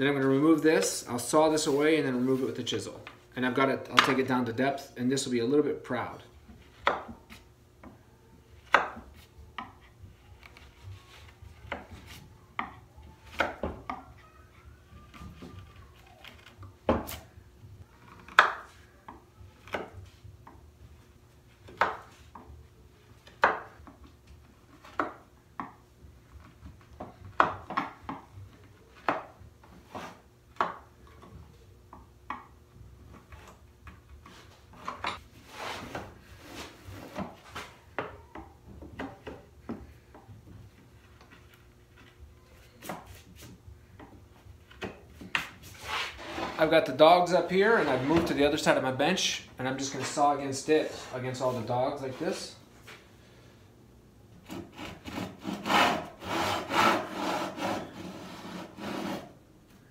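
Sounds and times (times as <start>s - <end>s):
knife scratching along wood: 54.4s - 59.3s.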